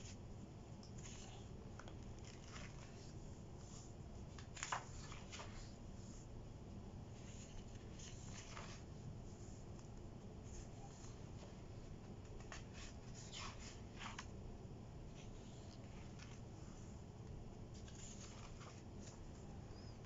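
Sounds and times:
low room hum: 0:00.0 - 0:20.0
paper pages turning: 0:00.9 - 0:05.8, 0:07.2 - 0:08.9, 0:12.2 - 0:14.3, 0:15.2 - 0:16.5, 0:17.7 - 0:20.0.

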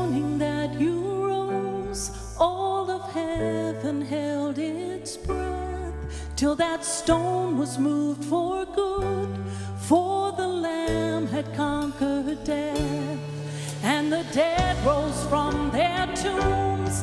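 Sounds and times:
woman singing with vibrato: 0:00.0 - 0:17.0
instrumental accompaniment: 0:08.9 - 0:17.0.

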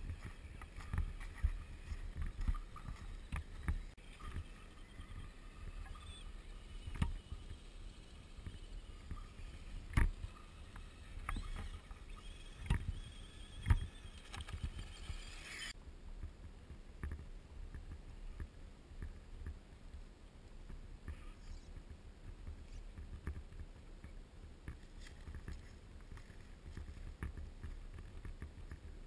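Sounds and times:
toy truck motors whining: 0:00.1 - 0:15.8.

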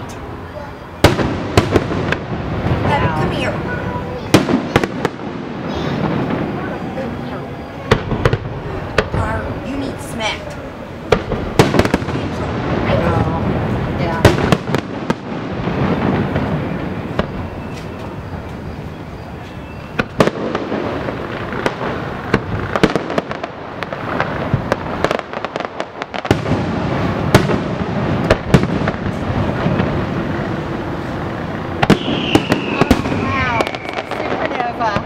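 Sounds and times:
fireworks booms and crackles: 0:00.0 - 0:35.0
whistling firework shell: 0:16.1 - 0:20.8, 0:31.8 - 0:35.0.

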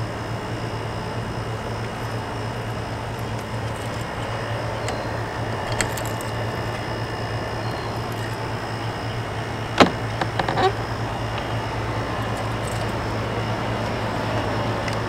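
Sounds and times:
keys jingling: 0:02.8 - 0:08.8, 0:09.8 - 0:13.2
lock handle clicking: 0:03.4 - 0:06.8, 0:09.7 - 0:11.6.

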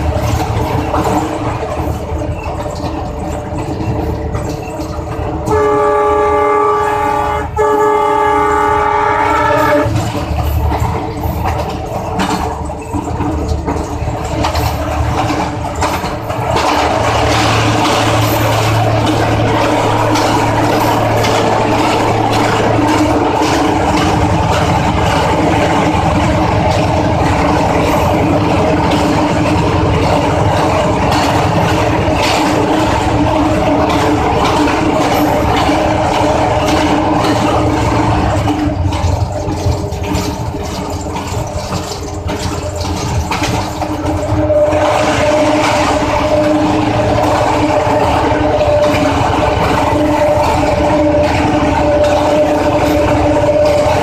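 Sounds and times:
locomotive engine drone: 0:00.0 - 0:54.0
track noise: 0:00.0 - 0:54.0
locomotive horn: 0:05.4 - 0:10.2, 0:44.0 - 0:54.0.

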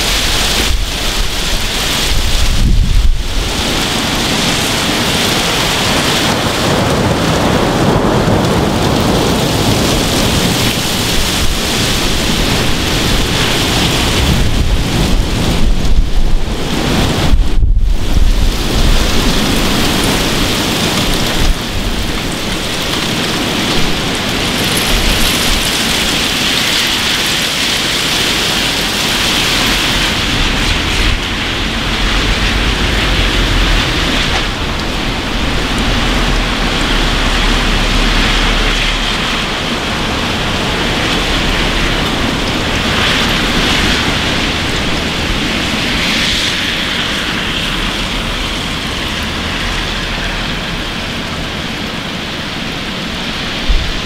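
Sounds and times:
heavy rain on pavement and cars: 0:00.0 - 0:54.0
low rumble: 0:08.4 - 0:22.8, 0:28.3 - 0:51.9.

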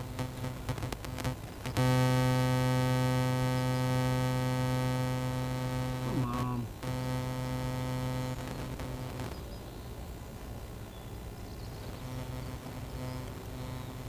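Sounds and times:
electrical buzz: 0:00.0 - 0:14.0.

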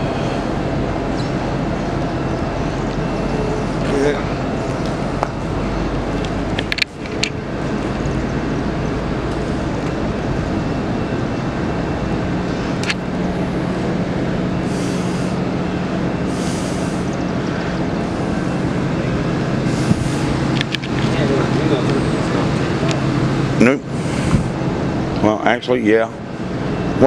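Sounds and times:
train cars rumbling on rails: 0:00.0 - 0:27.0.

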